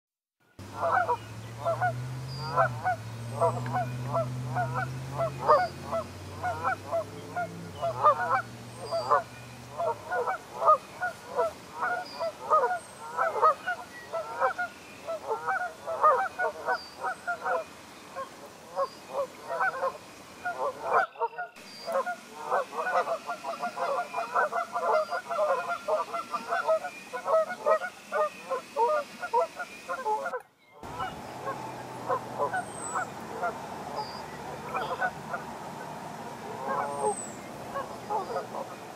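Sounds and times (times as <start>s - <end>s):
low steady hum: 0.6s - 11.6s
geese honking: 0.6s - 38.9s.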